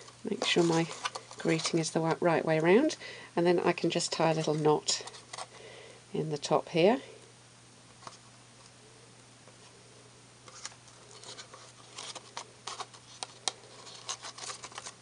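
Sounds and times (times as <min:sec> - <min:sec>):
soft rustles of cardstock box: 0:00.0 - 0:02.9, 0:03.7 - 0:05.6, 0:10.5 - 0:15.0.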